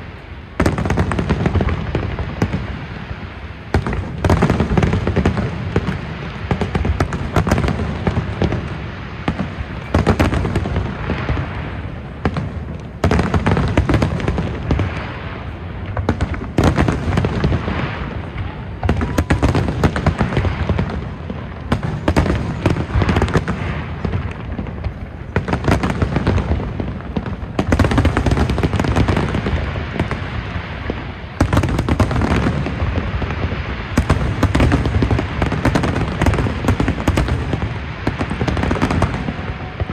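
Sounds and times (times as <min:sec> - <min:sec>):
fireworks booming and crackling: 0:00.0 - 0:39.9.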